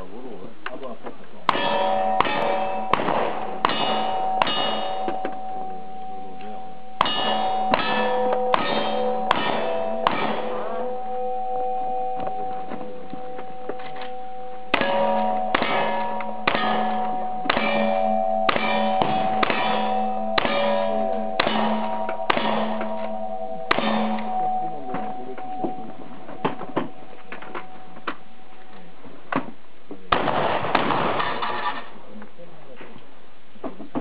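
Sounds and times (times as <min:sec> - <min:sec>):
rifle shots: 0:01.5 - 0:04.2, 0:30.1 - 0:31.9
steel targets clanging: 0:01.5 - 0:12.4, 0:13.3 - 0:28.5, 0:30.1 - 0:32.0.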